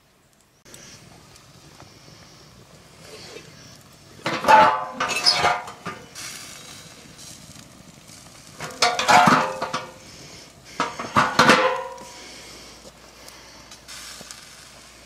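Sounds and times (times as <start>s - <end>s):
metal grill hood clanking: 4.2s - 6.0s, 8.6s - 10.0s, 10.8s - 12.1s.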